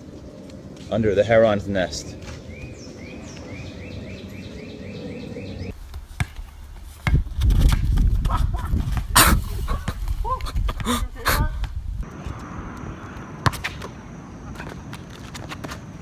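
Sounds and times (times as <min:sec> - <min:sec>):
wind rumbling on microphone: 0:06.8 - 0:13.4.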